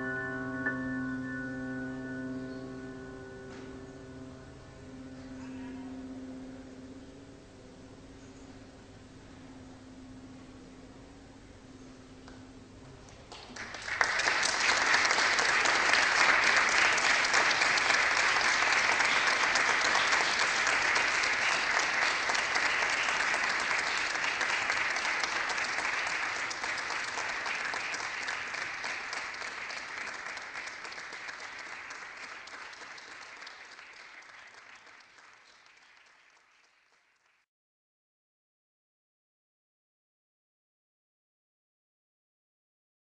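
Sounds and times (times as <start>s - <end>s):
audience applauding: 13.2s - 37.4s.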